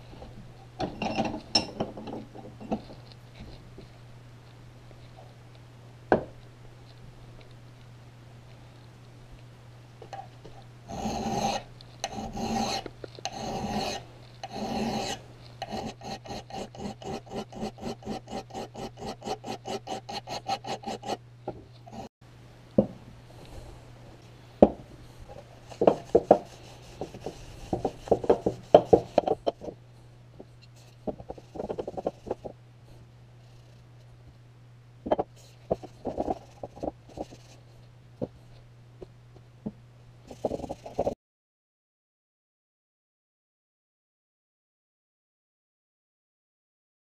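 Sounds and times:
file rasping on steel: 10.9 - 21.2, 21.9 - 22.1.

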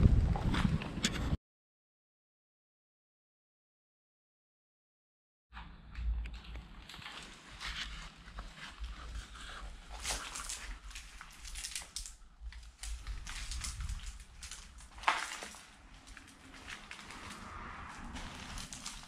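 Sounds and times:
footsteps crunching over debris: 6.4 - 19.0
sharp crack: 10.0 - 19.0.

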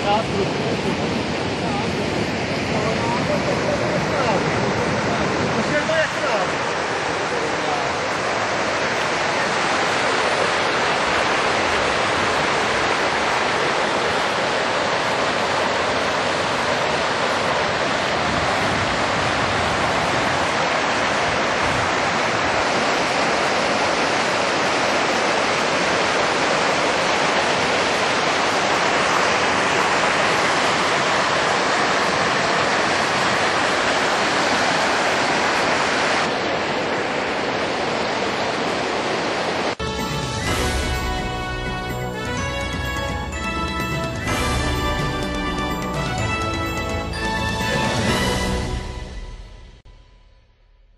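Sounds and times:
water rushing over stones: 0.0 - 39.8.

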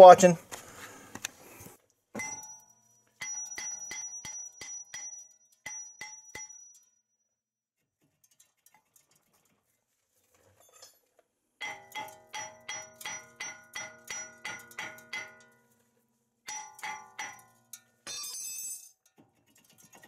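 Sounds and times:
bell-like struck notes: 2.2 - 7.0.

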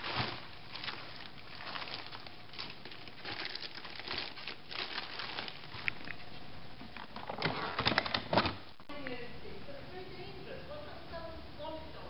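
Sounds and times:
plastic liner crinkling: 0.0 - 8.8.

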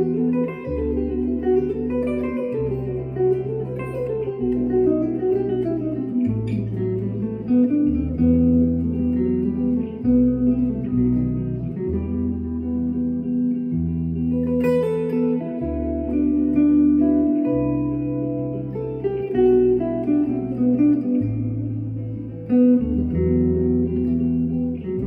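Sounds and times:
electric guitar single-note line: 0.0 - 25.0
long held bass notes: 0.0 - 25.0.

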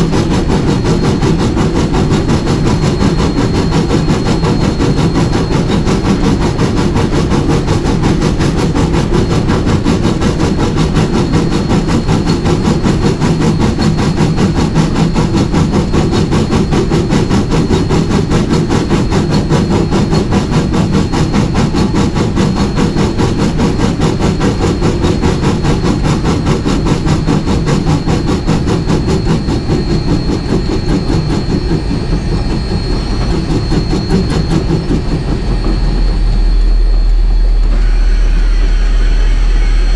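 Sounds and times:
faint high tone: 31.6 - 39.9.

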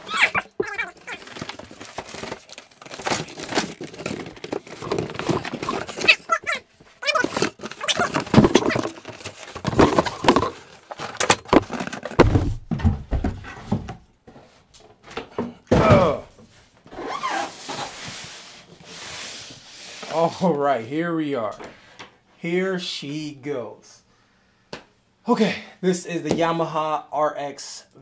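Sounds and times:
rustling handling: 0.0 - 12.3
cardboard scraping and squeaking: 0.0 - 12.4, 16.9 - 20.3.

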